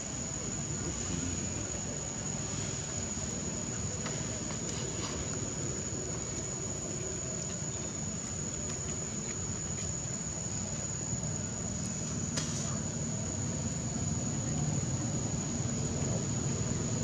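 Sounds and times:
low rumbling background noise: 0:00.0 - 0:17.0.

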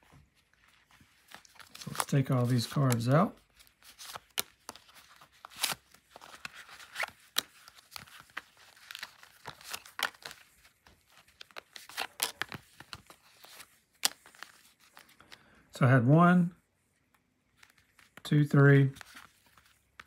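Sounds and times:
cards scraping and clicking: 0:01.1 - 0:15.4, 0:17.6 - 0:20.0.

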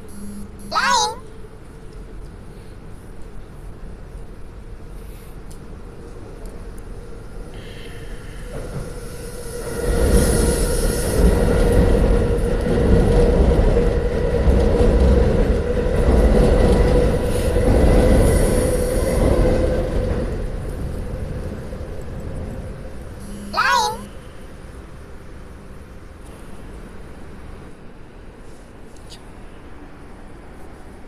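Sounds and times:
humming tones: 0:00.0 - 0:00.8, 0:23.2 - 0:24.2
high hiss: 0:07.4 - 0:12.1.

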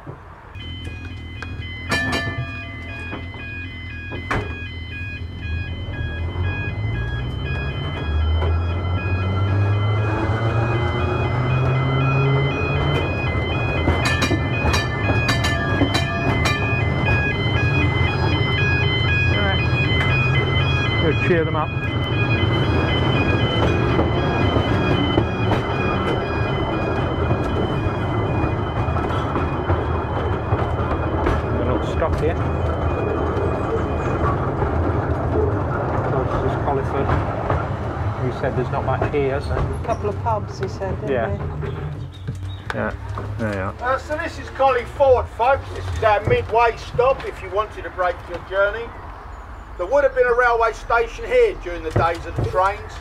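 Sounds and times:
electric tram motor hum: 0:00.0 - 0:53.0
level crossing alarm warbling: 0:00.6 - 0:36.0.

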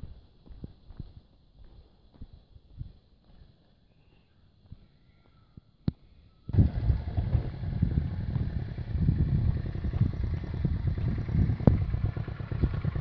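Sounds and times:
motorcycle engine rumbling: 0:06.5 - 0:13.0.

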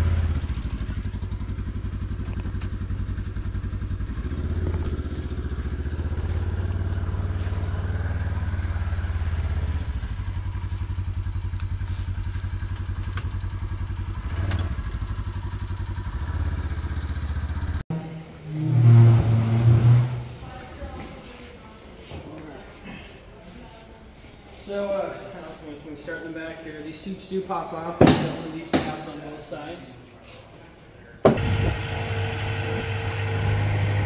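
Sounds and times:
engine running steadily: 0:00.0 - 0:18.2, 0:31.3 - 0:34.0.

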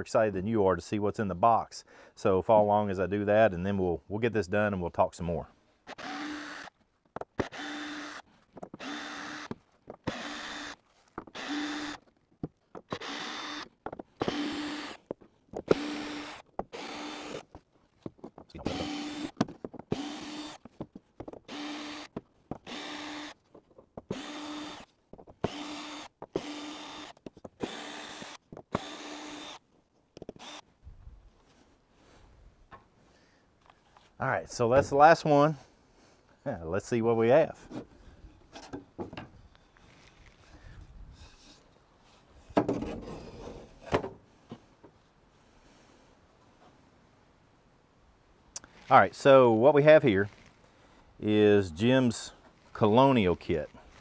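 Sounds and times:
cordless drill motor whine: 0:05.9 - 0:06.7, 0:07.4 - 0:08.2, 0:08.8 - 0:12.0, 0:12.9 - 0:15.0, 0:15.7 - 0:17.4, 0:18.6 - 0:20.6, 0:21.5 - 0:23.4, 0:24.1 - 0:29.6, 0:30.3 - 0:30.7.

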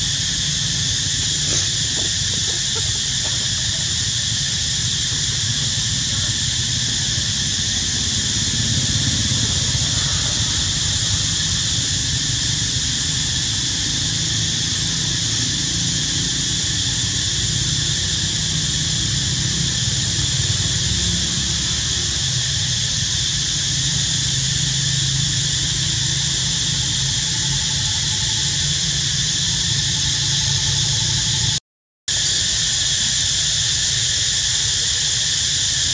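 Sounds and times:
insect chorus drone: 0:00.0 - 0:35.9.

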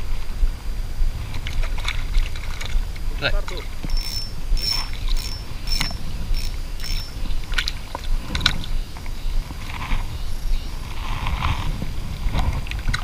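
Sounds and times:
water sloshing: 0:01.1 - 0:10.1
spinning reel ticking: 0:03.8 - 0:07.6.

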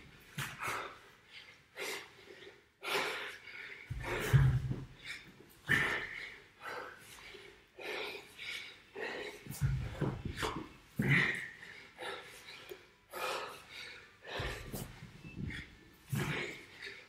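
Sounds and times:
man breathing hard: 0:00.0 - 0:17.0.

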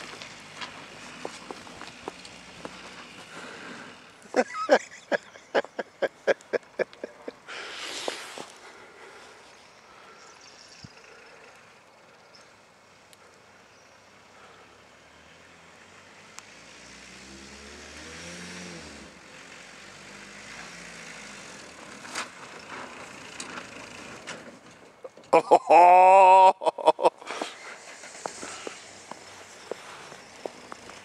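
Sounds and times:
distant diesel van engine revving: 0:00.0 - 0:09.3, 0:14.0 - 0:24.7, 0:27.2 - 0:31.0
steady hiss: 0:03.2 - 0:08.7, 0:27.2 - 0:31.0.

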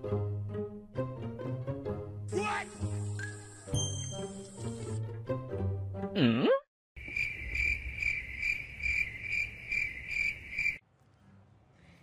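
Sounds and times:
cricket chirping: 0:07.0 - 0:10.8.

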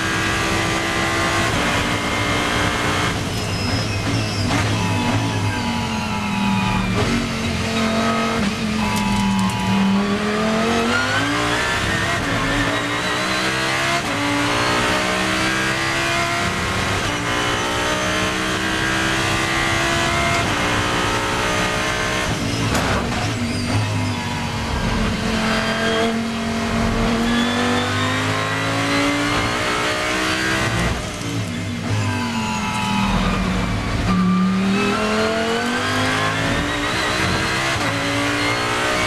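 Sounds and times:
racing car engine revving: 0:00.0 - 0:39.0.

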